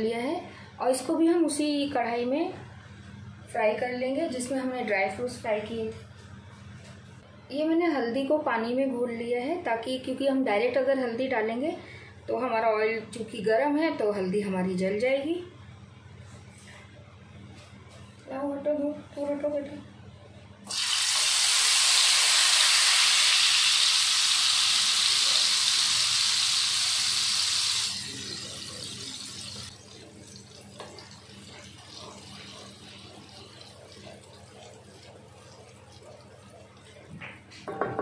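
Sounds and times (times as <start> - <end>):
water sizzling in hot oil: 20.7 - 37.0
frying bubble: 20.7 - 37.8
wooden spatula stirring: 30.8 - 37.7.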